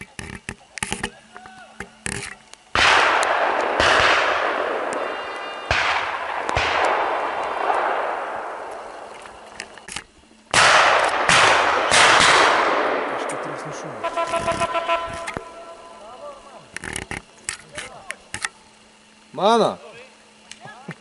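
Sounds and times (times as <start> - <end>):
shotgun shots echoing: 2.7 - 9.5, 10.5 - 13.8.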